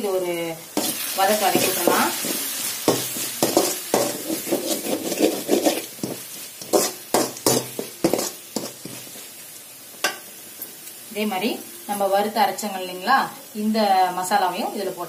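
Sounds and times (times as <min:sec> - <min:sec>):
frying sizzle: 0:00.0 - 0:15.0
metal spatula scraping a pan: 0:00.8 - 0:09.3.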